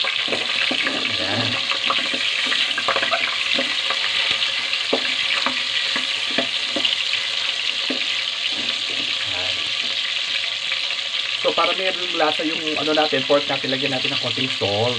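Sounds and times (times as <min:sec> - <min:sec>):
meat sizzling in hot oil: 0:00.0 - 0:14.9
wooden spatula scraping pan: 0:00.2 - 0:07.0.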